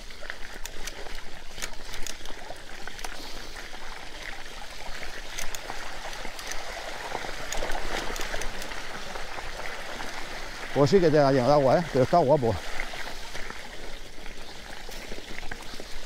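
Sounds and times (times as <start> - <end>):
small clicks and ticks: 0.0 - 12.1
stream water splashing: 0.0 - 16.0.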